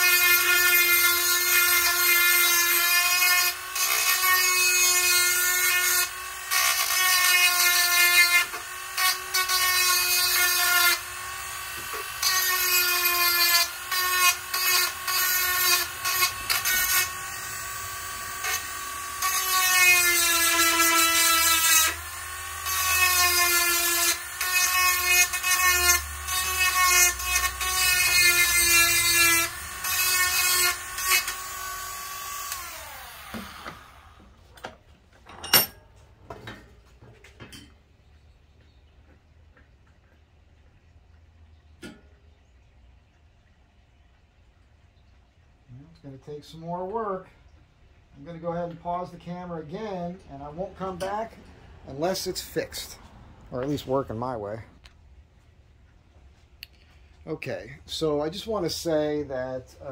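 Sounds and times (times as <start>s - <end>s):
rotary tool grinding whine: 0.0s - 34.6s.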